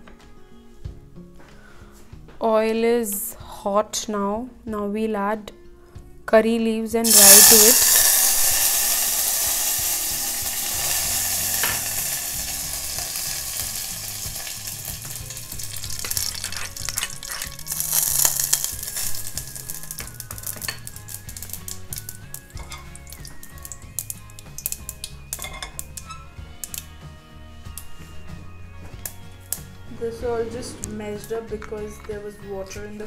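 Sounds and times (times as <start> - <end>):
seeds sizzling in hot oil: 7.0 - 26.0
oil popping and crackling: 7.0 - 26.9.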